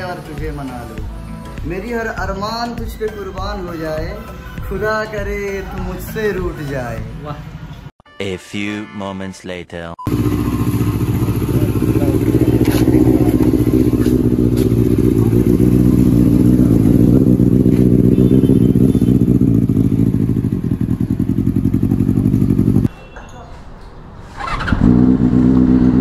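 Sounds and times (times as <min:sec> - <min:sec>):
motorcycle engine running: 0:10.1 - 0:22.9, 0:24.4 - 0:26.0.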